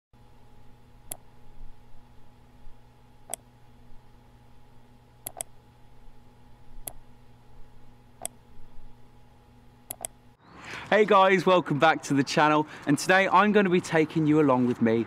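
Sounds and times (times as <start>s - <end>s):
faint steady hum: 0.2s - 13.8s
computer mouse clicking: 5.2s - 5.5s, 9.9s - 10.2s.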